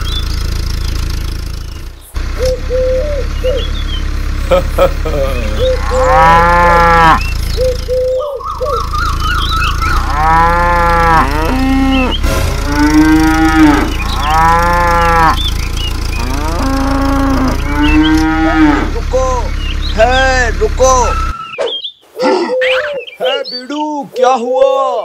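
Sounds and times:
cows mooing: 0:05.2 - 0:21.1.

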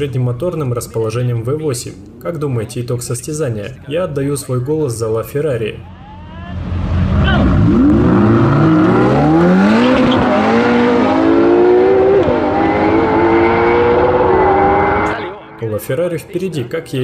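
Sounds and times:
sports car engines revving hard: 0:06.5 - 0:15.6.

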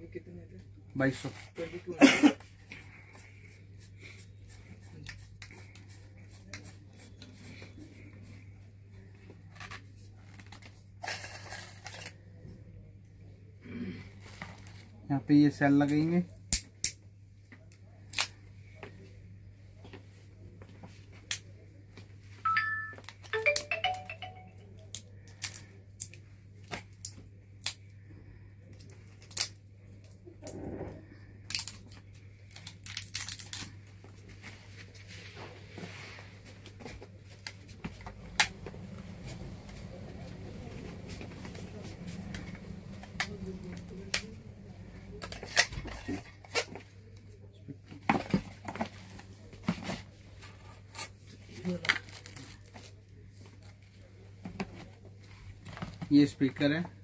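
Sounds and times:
steady low hum: 0:33.9 - 0:46.4.

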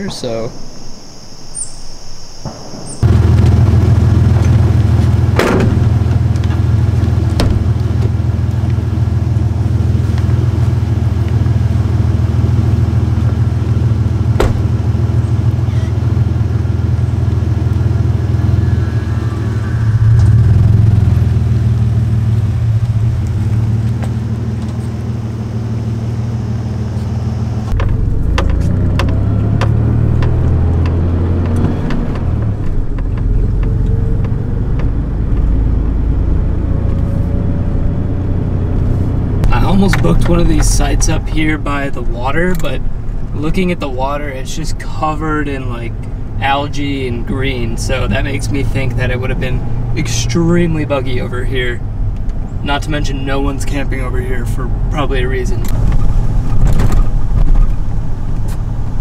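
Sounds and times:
sharp crack: 0:02.4 - 0:08.8
engine pulling with rising pitch: 0:03.0 - 0:43.1
pickup truck engine idling: 0:03.0 - 0:59.0.

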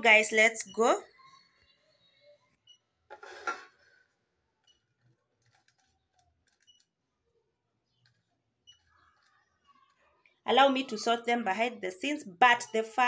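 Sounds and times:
clicks and rustles of dry fish: 0:03.9 - 0:07.0.

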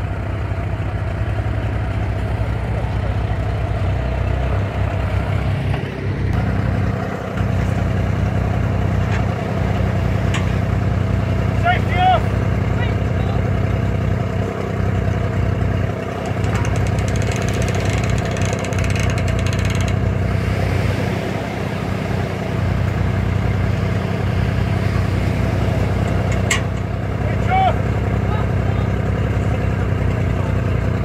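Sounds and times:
tractor engine idling: 0:00.0 - 0:31.0.

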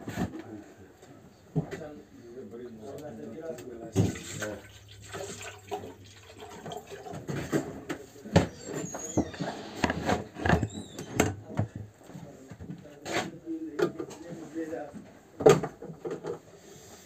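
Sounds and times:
short high squeaks: 0:08.5 - 0:09.7.

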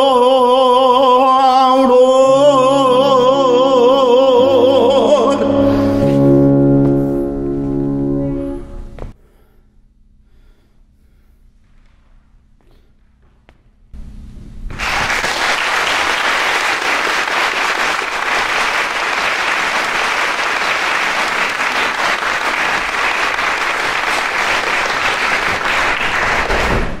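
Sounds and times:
audience applauding: 0:14.7 - 0:27.0.

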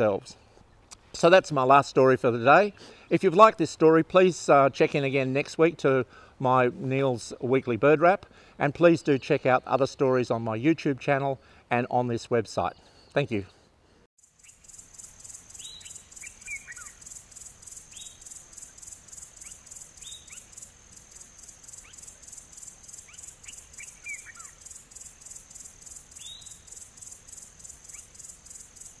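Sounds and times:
insect chorus chirping: 0:14.2 - 0:29.0
bird calls: 0:14.4 - 0:29.0.

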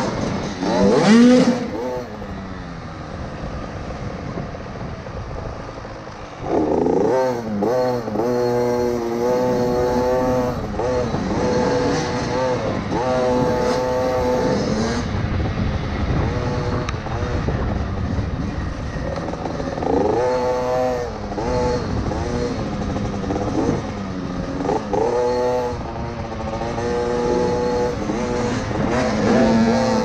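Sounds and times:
two-stroke motorbike revving: 0:00.0 - 0:30.0
wind buffeting microphone: 0:00.0 - 0:30.0.

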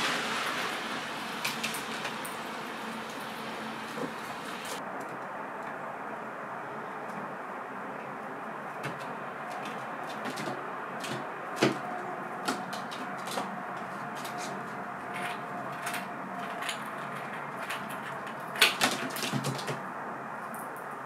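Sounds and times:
squirrel claws clicking on wood: 0:08.8 - 0:19.8.

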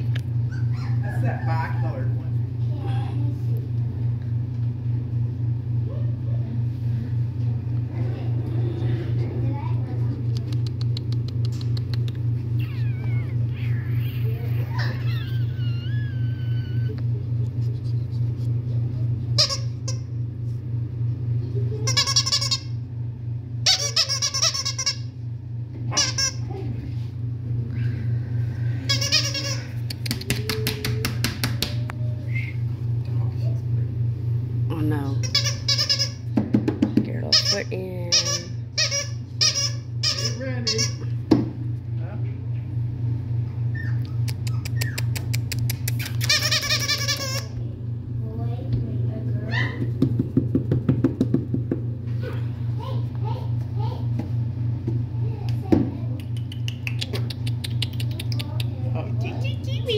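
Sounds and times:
throbbing mechanical hum: 0:00.0 - 0:59.9
puppy whining: 0:00.4 - 0:02.1, 0:10.7 - 0:20.0, 0:43.4 - 0:47.6, 0:49.4 - 0:49.9.

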